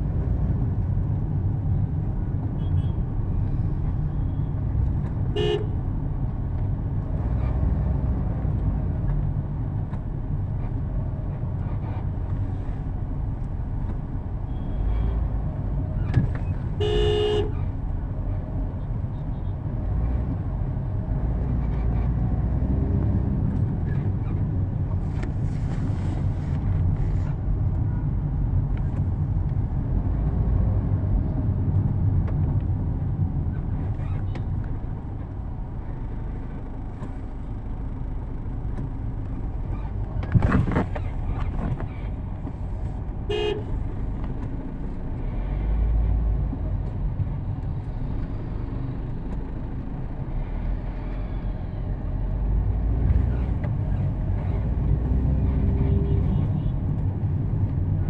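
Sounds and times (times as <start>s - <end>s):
road and wind noise: 0.0s - 58.0s
vehicle horn toot: 5.4s - 5.7s, 16.8s - 17.6s, 43.3s - 43.7s.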